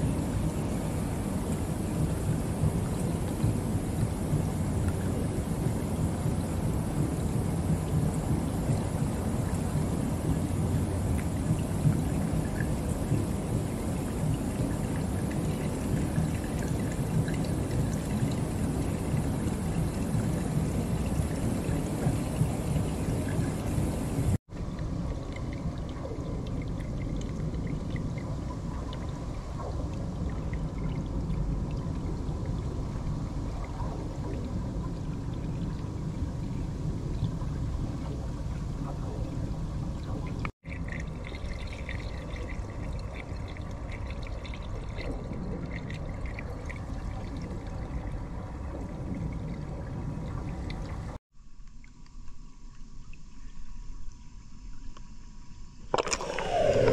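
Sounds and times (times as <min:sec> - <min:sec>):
pool water pouring and splashing: 0:08.7 - 0:51.2, 0:56.0 - 0:56.9.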